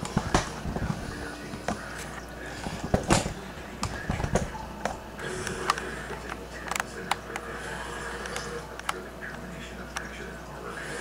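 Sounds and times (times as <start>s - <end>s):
sharp clicks and light knocks: 0.0s - 7.5s, 8.2s - 10.1s
low steady hum: 0.0s - 11.0s.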